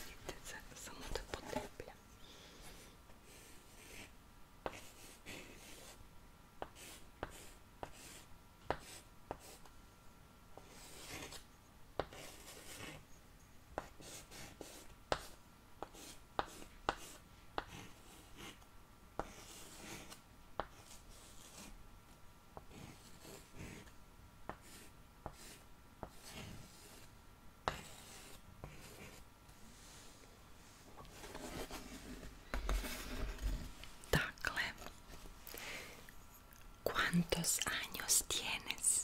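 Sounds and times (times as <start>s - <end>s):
pen scratching on paper: 2.6s - 6.0s, 6.6s - 9.6s, 10.6s - 11.4s, 12.0s - 13.1s, 13.8s - 18.6s, 19.2s - 21.7s, 22.7s - 23.9s, 24.5s - 27.1s, 27.7s - 29.2s, 31.1s - 33.6s.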